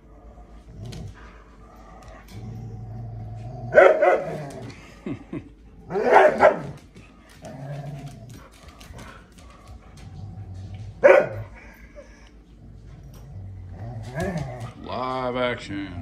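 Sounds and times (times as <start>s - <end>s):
dogs growling in play: 0.0s - 16.0s
dog barks: 3.8s - 4.4s, 5.9s - 6.8s, 11.0s - 11.5s.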